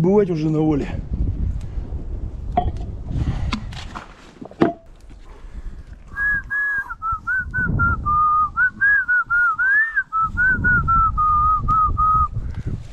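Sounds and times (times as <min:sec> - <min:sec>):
rustling and handling noise: 0:03.5 - 0:06.0
person whistling a slow melody: 0:06.1 - 0:12.4.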